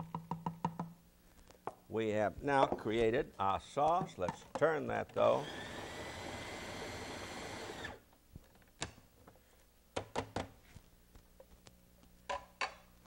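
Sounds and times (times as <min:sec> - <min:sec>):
food processor motor: 0:05.4 - 0:08.0.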